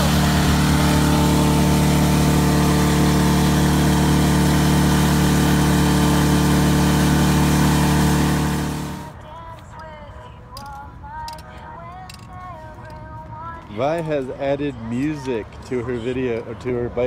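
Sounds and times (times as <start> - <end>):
steady engine drone: 0.0 - 9.2.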